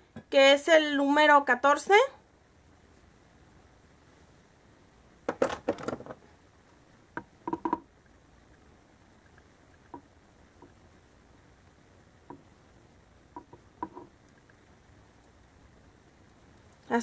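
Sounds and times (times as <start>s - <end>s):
plastic clicks and knocks: 5.3s - 6.2s, 7.2s - 7.9s.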